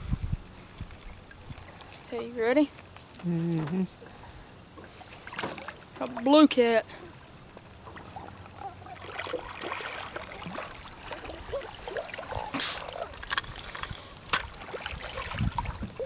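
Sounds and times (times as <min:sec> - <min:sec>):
water trickling and dripping: 0:00.6 - 0:02.9, 0:07.8 - 0:16.0
fish splashing at water surface: 0:08.9 - 0:15.8.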